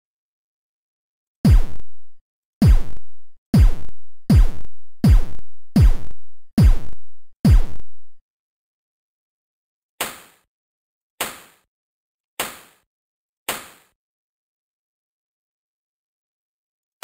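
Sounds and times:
electronic kick drum hits: 1.5s - 1.8s, 2.6s - 3.0s, 3.6s - 7.8s.

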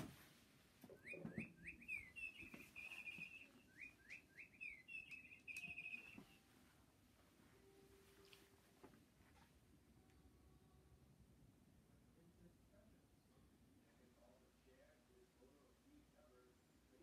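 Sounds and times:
birdlike chirping and trill: 0.9s - 6.5s.

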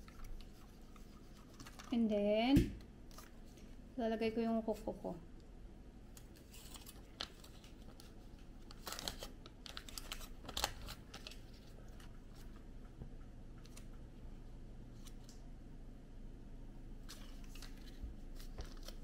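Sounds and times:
faint crinkling of foil: 0.0s - 2.3s, 6.1s - 12.8s, 17.0s - 19.0s.

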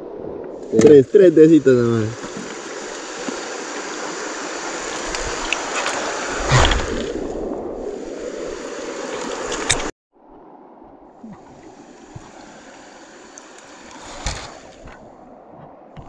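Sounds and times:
river water rushing over stones: 0.6s - 16.0s.

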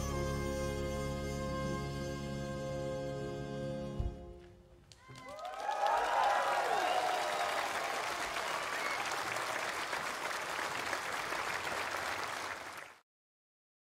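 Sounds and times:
cheers and whoops: 4.9s - 9.9s
audience applauding: 4.9s - 13.0s.

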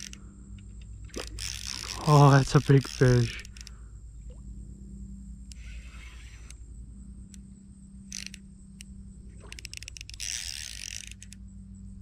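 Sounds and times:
fishing reel clicking: 0.0s - 3.8s, 5.4s - 6.6s, 7.2s - 11.5s
steady low hum: 0.0s - 12.0s.

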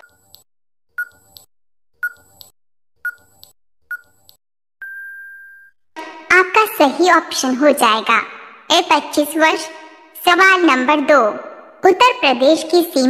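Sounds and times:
long steady beep: 4.8s - 5.7s.

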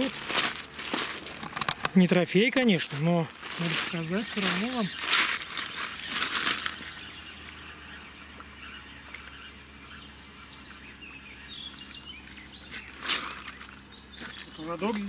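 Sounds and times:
rustling noise: 0.0s - 2.1s, 2.8s - 6.9s, 12.7s - 14.6s
wild birds chirping: 0.0s - 15.0s.

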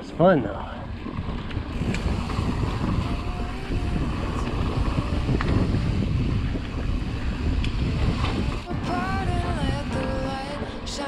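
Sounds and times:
tyres rumbling on dirt trail: 0.0s - 10.4s
wind buffeting microphone: 0.0s - 11.0s
bike clicks and rattles: 0.9s - 8.7s.

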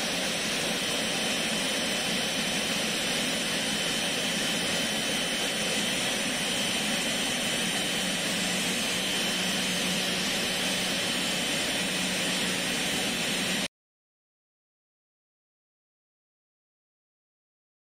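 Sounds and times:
jet engines whining: 0.0s - 13.7s.

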